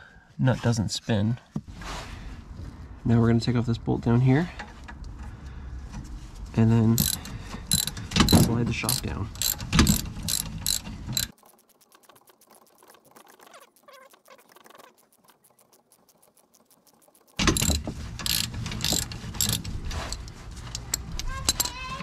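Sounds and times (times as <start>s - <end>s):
ratchet wrench clicking: 7.0s - 22.0s.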